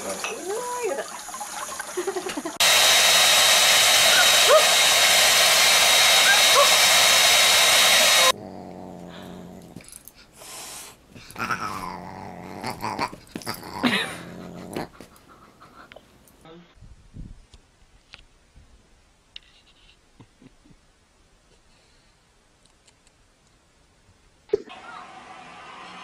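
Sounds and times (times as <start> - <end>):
tap water running: 0.0 - 4.0
hair dryer blowing: 2.5 - 8.4, 24.7 - 26.0
dog growling: 8.2 - 10.1, 11.2 - 15.2.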